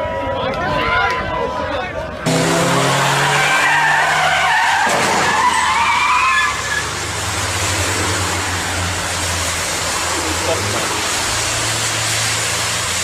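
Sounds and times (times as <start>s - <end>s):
car engines running: 0.0s - 13.0s
tyres squealing in a skid: 2.6s - 13.0s.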